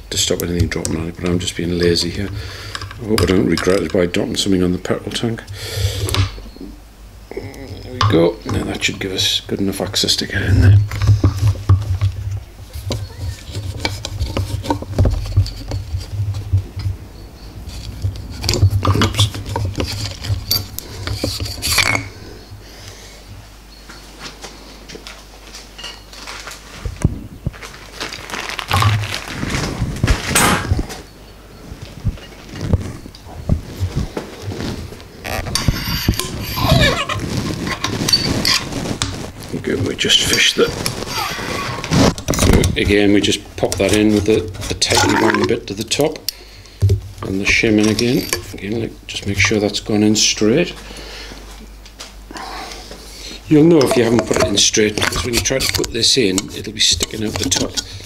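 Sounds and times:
low uneven hum: 0:00.0 - 0:58.0
metal spring scraping and rattling: 0:12.8 - 0:22.2, 0:34.6 - 0:39.3, 0:47.5 - 0:48.6, 0:53.8 - 0:58.0.

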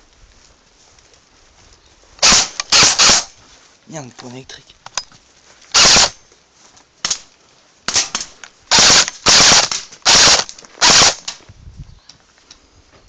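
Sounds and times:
airsoft rifle firing bursts: 0:02.2 - 0:03.3, 0:05.7 - 0:06.2, 0:07.9 - 0:11.4.

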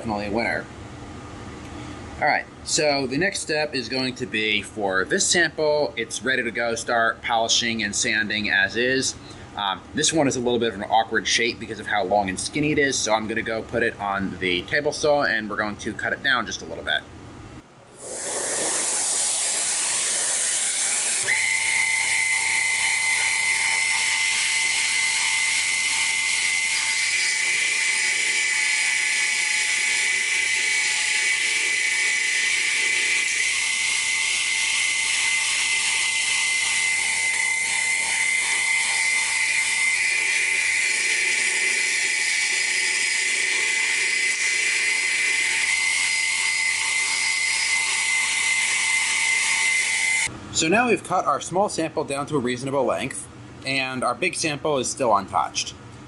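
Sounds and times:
table saw whining: 0:18.0 - 0:50.3.

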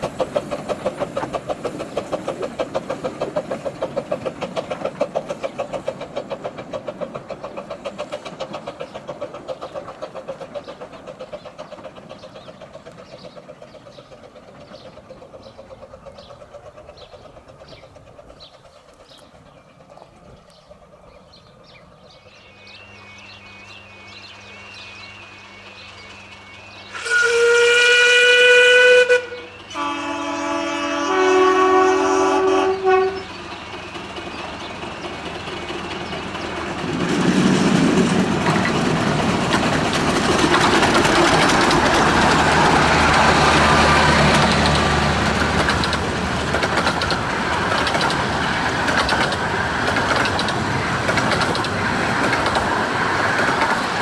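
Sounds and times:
steam train running past: 0:00.0 - 0:54.0
single-note steam whistle: 0:22.5 - 0:33.3.

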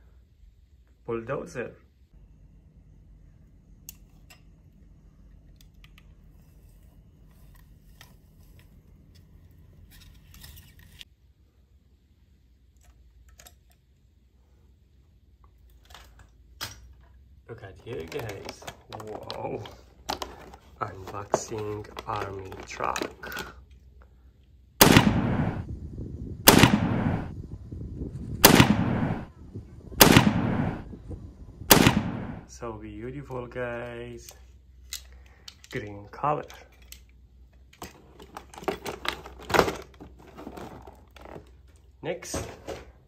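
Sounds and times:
gravel crunching and scraping: 0:17.5 - 0:23.6
artillery blasts with rumble: 0:24.8 - 0:32.5.

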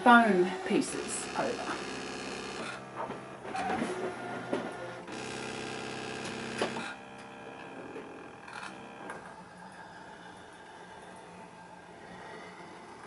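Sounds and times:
cutting machine motor tone: 0:00.0 - 0:09.3
quiet machine hum: 0:00.0 - 0:13.0.

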